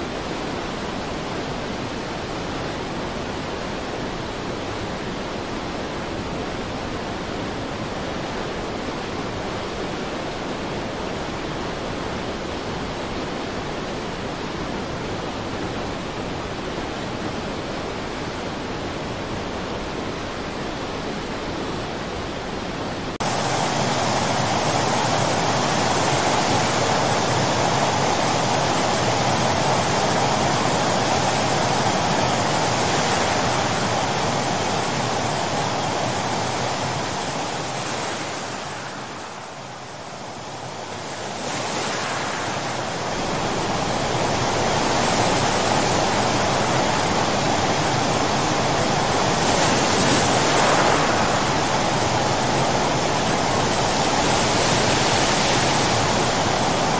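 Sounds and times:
floodwater rushing: 0:23.0 - 0:56.9.

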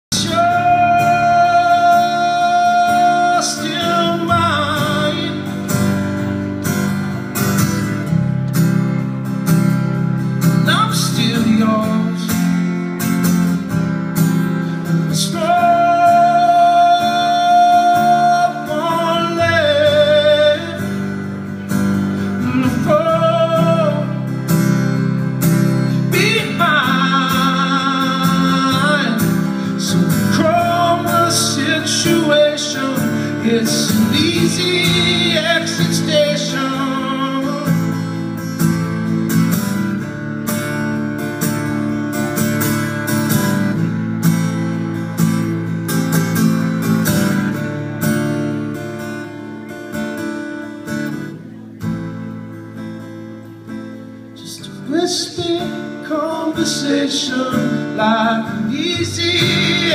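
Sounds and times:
man singing: 0:00.0 - 0:06.1, 0:10.4 - 0:12.8, 0:14.9 - 0:21.4, 0:22.1 - 0:24.4, 0:25.8 - 0:38.2, 0:54.4 - 0:59.9
strummed acoustic guitar: 0:00.1 - 0:59.9.

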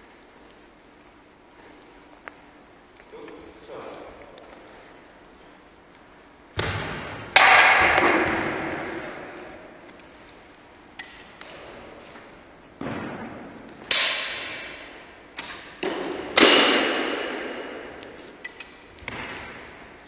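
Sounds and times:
arrow striking target: 0:06.6 - 0:09.4, 0:12.8 - 0:14.8, 0:15.4 - 0:17.9.

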